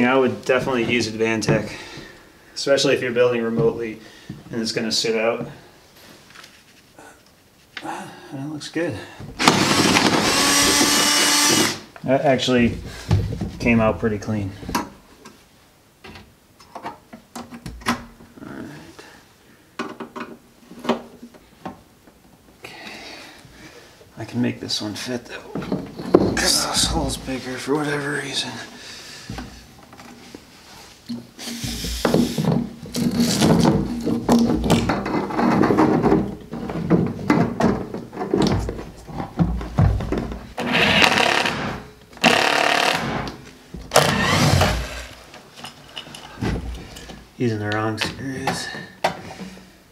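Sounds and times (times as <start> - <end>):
power drill running: 9.4 - 11.9, 40.7 - 43.3, 43.9 - 45.2.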